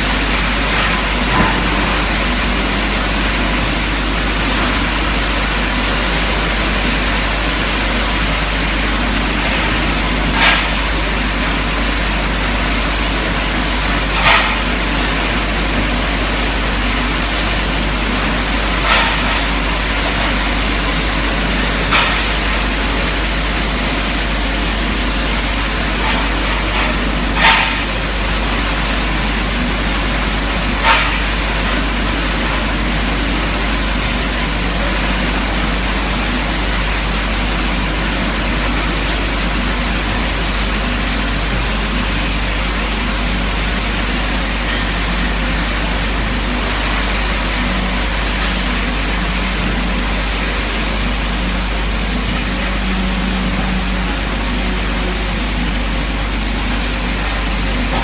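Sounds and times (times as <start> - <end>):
polishing machine humming: 39.8 - 58.0.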